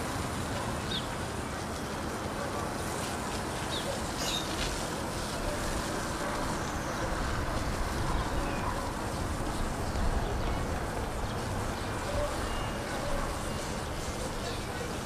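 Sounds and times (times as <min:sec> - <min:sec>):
distant traffic rumble: 0:00.0 - 0:15.0.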